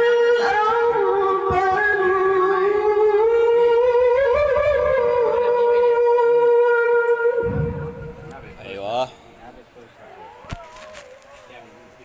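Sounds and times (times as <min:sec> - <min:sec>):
woman chanting melodically: 0:00.0 - 0:08.2.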